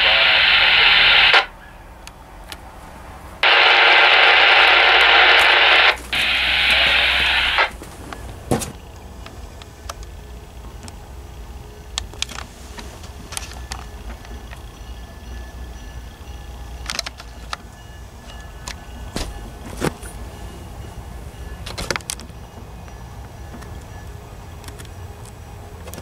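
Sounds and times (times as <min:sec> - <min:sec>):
radio static hiss: 0:00.0 - 0:01.6, 0:03.4 - 0:08.0.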